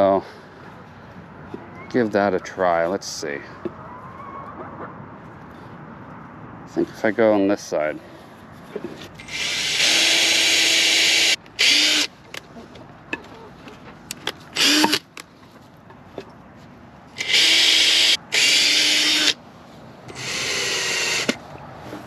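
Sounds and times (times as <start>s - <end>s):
cordless drill driving screws: 9.2s - 12.1s, 14.6s - 15.1s, 17.2s - 19.4s, 20.1s - 21.4s.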